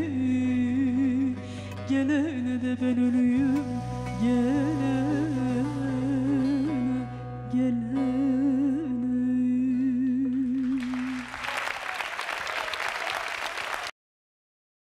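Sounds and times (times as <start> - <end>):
woman singing long note: 0.0 - 11.0
audience applauding: 10.5 - 14.0.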